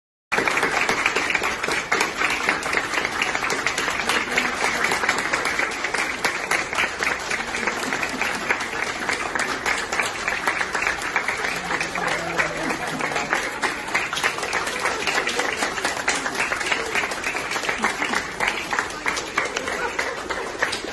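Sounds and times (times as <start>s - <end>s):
people applauding: 0.3s - 20.9s.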